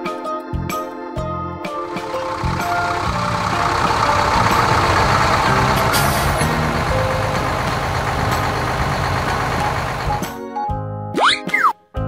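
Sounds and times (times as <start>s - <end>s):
truck engines running: 1.8s - 10.4s.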